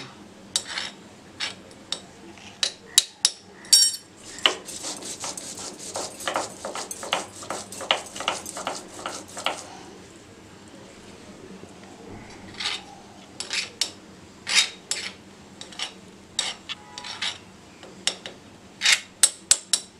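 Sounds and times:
ringing clink: 0:03.7 - 0:04.1
stone roller scraping on stone slab: 0:04.2 - 0:09.7.

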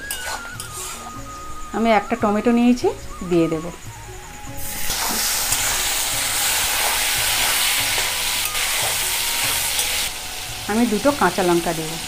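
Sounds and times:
metal spatula stirring: 0:00.0 - 0:01.2
loud steady sizzle of frying: 0:04.5 - 0:12.0.

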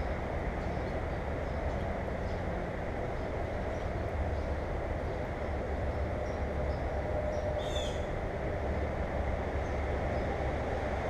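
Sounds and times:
low rumble and hiss: 0:00.0 - 0:11.0
bird chirp: 0:05.9 - 0:08.1.

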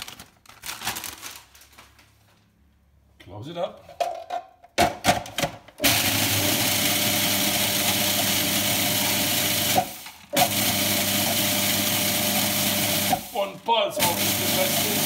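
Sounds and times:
food chopper grinding chips: 0:05.8 - 0:13.4, 0:14.0 - 0:15.0.

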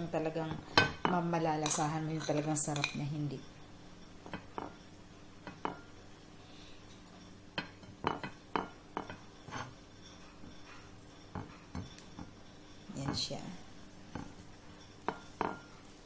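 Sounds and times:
metal spoon clinking on plate: 0:00.8 - 0:03.0.

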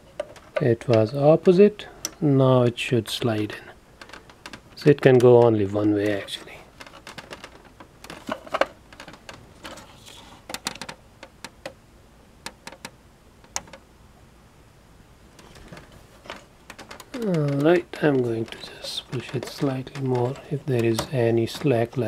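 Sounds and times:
plastic clicks and taps: 0:12.4 - 0:13.8.

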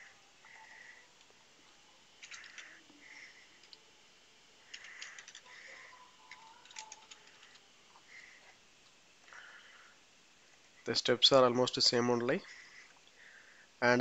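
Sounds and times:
keyboard typing: 0:04.7 - 0:07.6.

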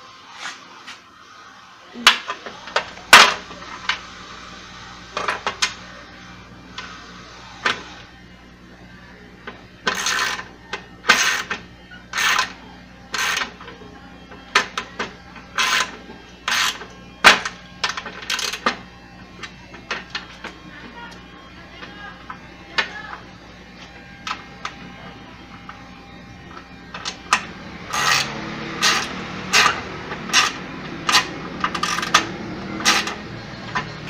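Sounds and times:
ratchet wrench clicking: 0:27.9 - 0:33.9.

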